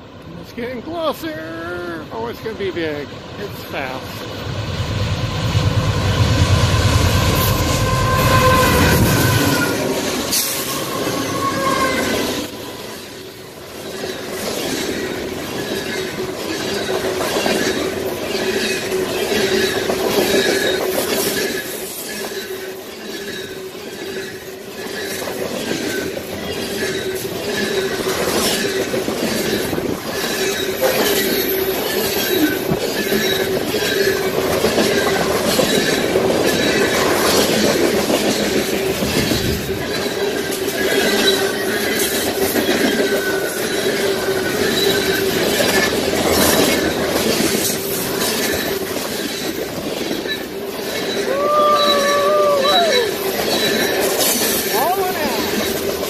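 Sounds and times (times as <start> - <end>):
steady squealing tone: 5.8 - 12.5
train wheels clicking over rails: 12.1 - 56.0.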